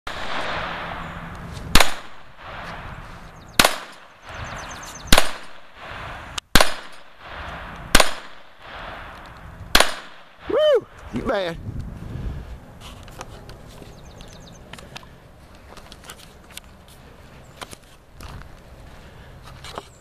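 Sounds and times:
handgun shots: 1.7s - 2.7s, 3.6s - 4.0s, 5.1s - 5.7s, 6.6s - 8.9s, 9.8s - 10.3s.

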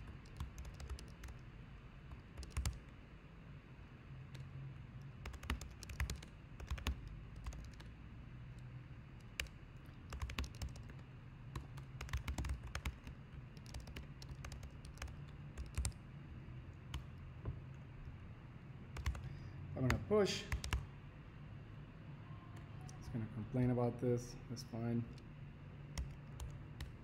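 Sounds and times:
typing on computer keyboard: 0.0s - 1.4s, 2.1s - 2.9s, 4.3s - 7.9s, 9.2s - 16.0s, 18.9s - 20.9s, 26.0s - 27.0s
low steady hum: 0.0s - 27.0s.

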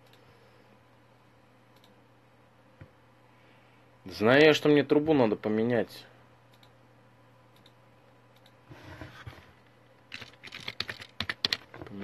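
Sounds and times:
typing on keyboard: 10.1s - 11.8s.

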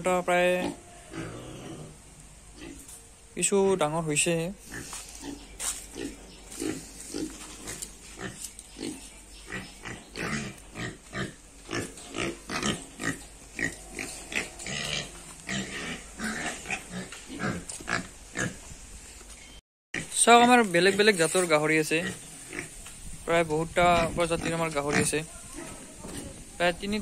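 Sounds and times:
young pigs grunting: 0.4s - 2.9s, 4.6s - 18.6s, 22.0s - 22.8s.

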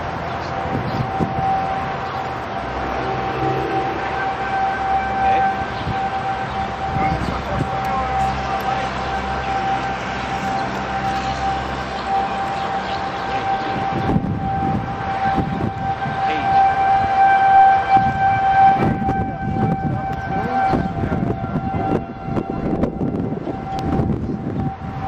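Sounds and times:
siren steady tone: 0.0s - 25.0s
wind rumbling on microphone: 0.0s - 25.0s.

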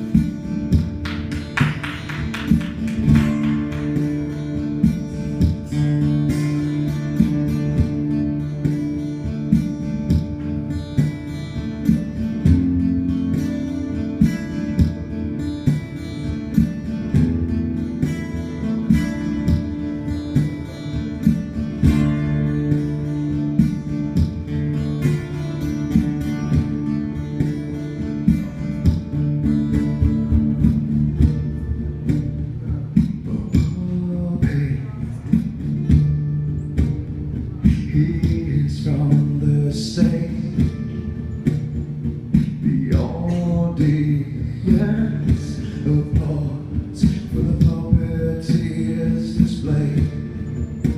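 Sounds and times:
acoustic guitar strumming: 0.0s - 50.9s.

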